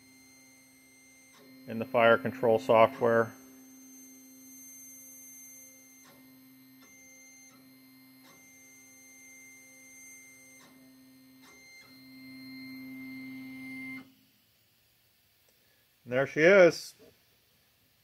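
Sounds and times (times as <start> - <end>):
stepper motors whining: 0.0 - 14.0.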